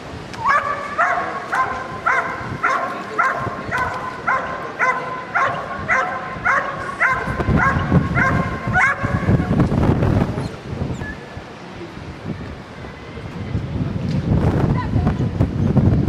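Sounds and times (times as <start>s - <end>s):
dog barking: 0.4s - 9.3s.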